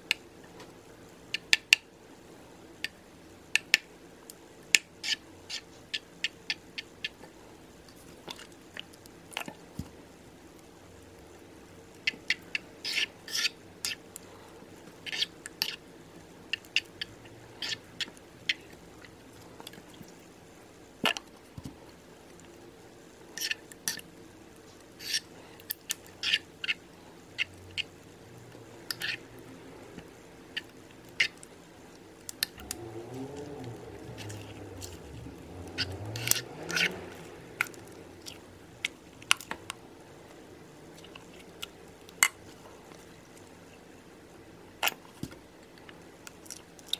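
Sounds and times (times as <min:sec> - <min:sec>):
spoon stirring sticky slime: 0:12.0 - 0:14.2, 0:14.9 - 0:15.8, 0:16.4 - 0:20.3, 0:23.3 - 0:39.8.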